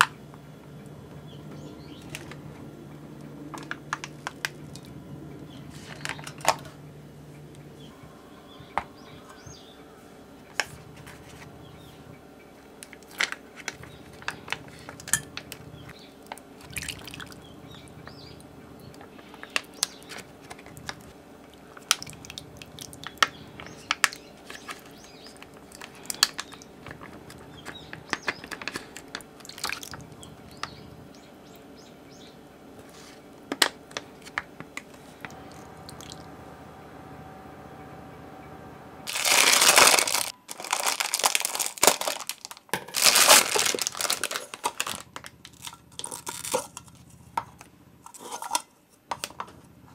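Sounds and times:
faint steady hum: 0.0s - 49.9s
spoon scraping metal mesh: 48.1s - 48.7s.

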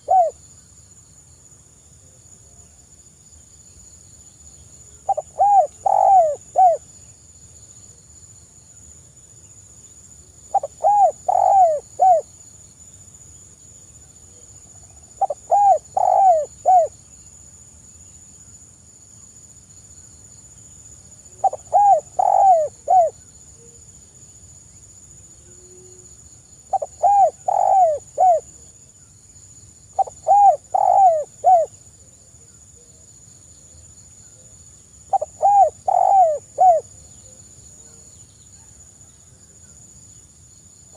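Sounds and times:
dove cooing: 0.0s - 0.4s, 5.1s - 6.8s, 10.5s - 12.2s, 15.2s - 17.0s, 21.4s - 23.2s, 26.7s - 28.7s, 30.0s - 31.7s, 35.1s - 38.0s.

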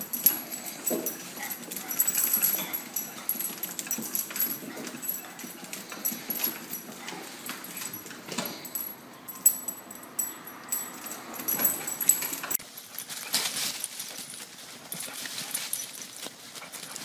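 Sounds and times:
dog paws rustling through dry leaves: 12.6s - 17.0s.

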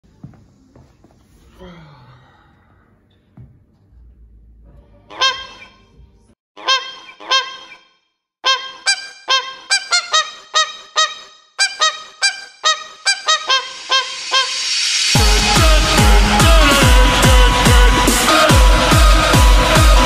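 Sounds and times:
toy honking like a goose: 5.1s - 5.8s, 6.6s - 14.7s.

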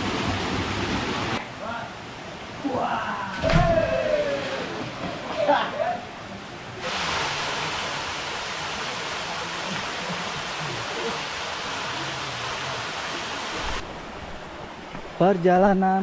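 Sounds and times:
waterfall rushing: 6.1s - 14.7s.

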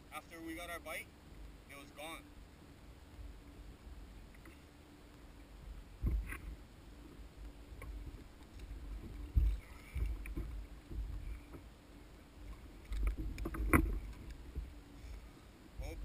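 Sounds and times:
wind and water rumble: 0.0s - 16.0s
thumps against kayak hull: 12.9s - 14.7s.

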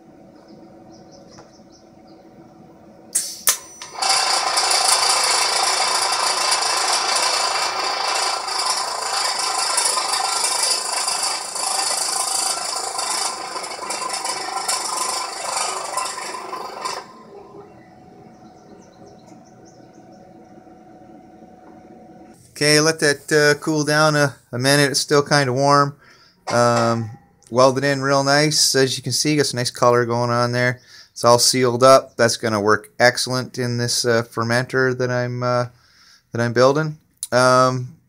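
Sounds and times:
welding arc buzzing hiss: 3.1s - 18.6s
welding arc strike: 3.1s - 18.8s.

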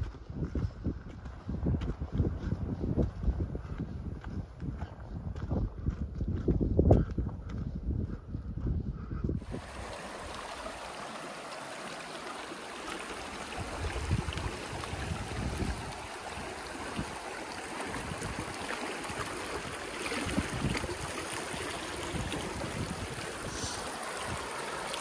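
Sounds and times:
creek running over rocks: 9.4s - 25.0s.

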